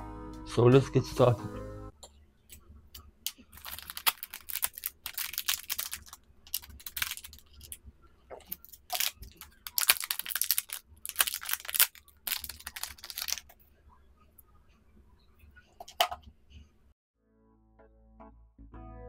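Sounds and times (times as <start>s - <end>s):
plastic bags crinkling: 3.3s - 7.8s, 8.4s - 13.6s.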